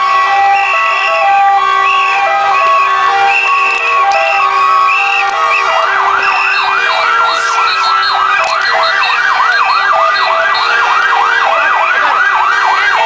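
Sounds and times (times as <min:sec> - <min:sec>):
celebrating crowd: 0:00.0 - 0:13.0
siren yelping: 0:00.0 - 0:13.0.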